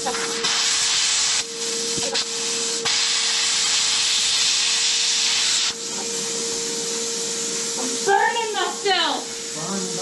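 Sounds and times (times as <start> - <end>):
plasma cutter arc hissing: 0.0 - 7.0.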